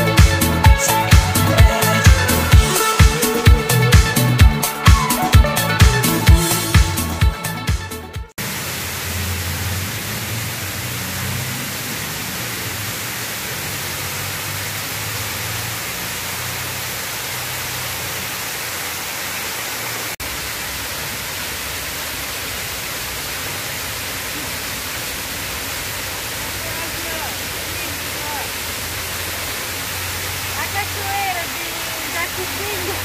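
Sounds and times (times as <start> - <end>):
fountain water splashing: 8.4 - 33.0.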